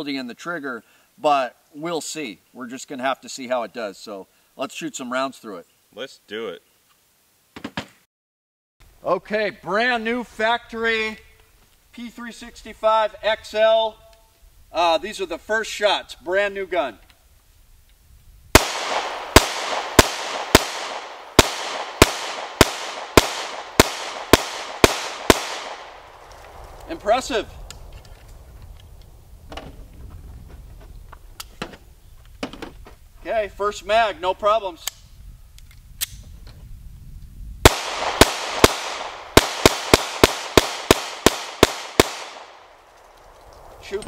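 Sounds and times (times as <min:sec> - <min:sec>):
pistol shots with echo: 0:18.6 - 0:26.2, 0:37.6 - 0:42.8.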